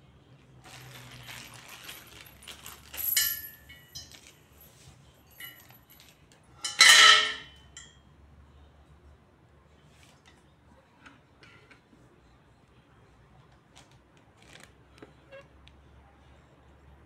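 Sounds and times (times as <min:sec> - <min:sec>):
metal clinking: 0:00.7 - 0:08.0
metal pieces scraping: 0:06.6 - 0:07.5.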